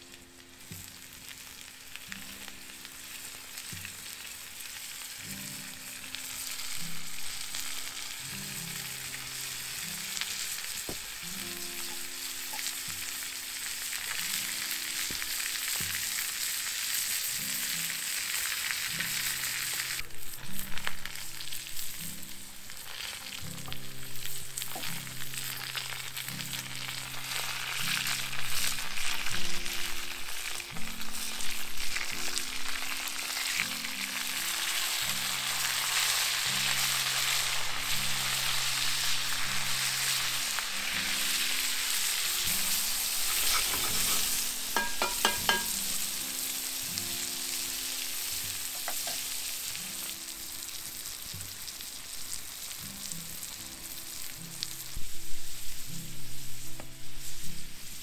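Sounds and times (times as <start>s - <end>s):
food sizzling in a hot pan: 0.0s - 58.0s
soft background music: 0.0s - 58.0s.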